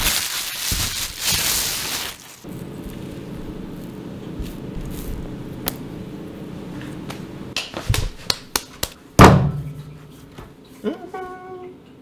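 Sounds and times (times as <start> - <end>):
low steady hum: 2.4 - 7.6, 9.0 - 12.0.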